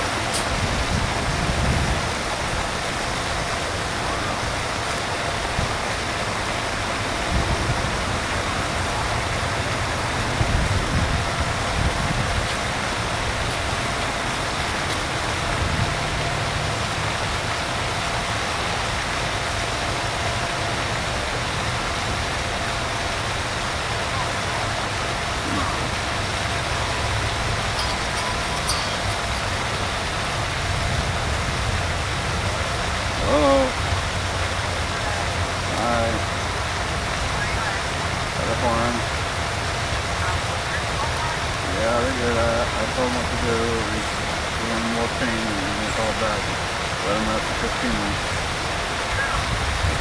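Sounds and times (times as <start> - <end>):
wind noise on microphone: 0.0 - 19.1, 25.4 - 35.7, 48.2 - 50.0.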